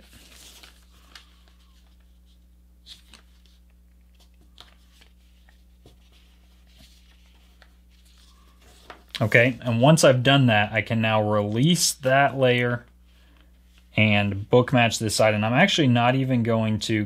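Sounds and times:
paper being folded: 0:00.0 - 0:09.4
low steady hum: 0:00.0 - 0:17.0.

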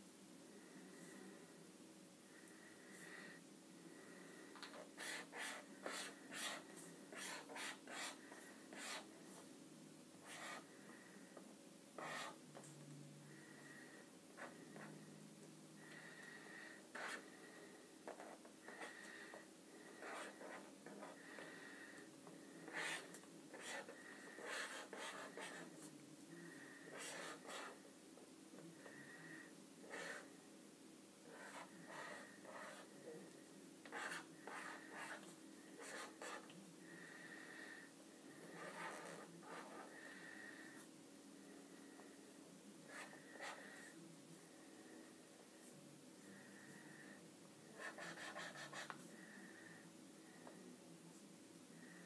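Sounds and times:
marker drawing on paper: 0:04.8 - 0:09.1, 0:10.2 - 0:10.7, 0:12.0 - 0:12.4, 0:16.9 - 0:17.2, 0:19.9 - 0:21.5, 0:22.6 - 0:25.8, 0:26.9 - 0:27.8, 0:29.8 - 0:30.3, 0:31.3 - 0:32.9, 0:33.9 - 0:36.5, 0:38.5 - 0:40.0, 0:42.9 - 0:43.6, 0:47.8 - 0:49.0.

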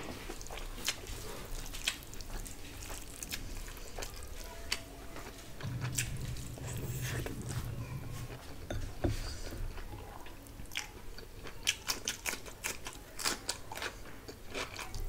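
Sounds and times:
low steady hum: 0:05.6 - 0:11.6.

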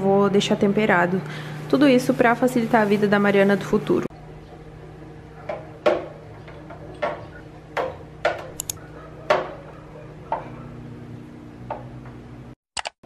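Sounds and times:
kitchen items knocking and clinking: 0:05.5 - 0:08.6, 0:09.3 - 0:09.7.

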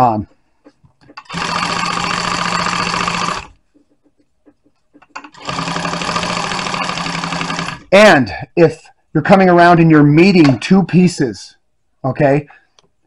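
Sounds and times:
industrial sewing machine stitching: 0:01.2 - 0:03.6, 0:05.2 - 0:07.9.

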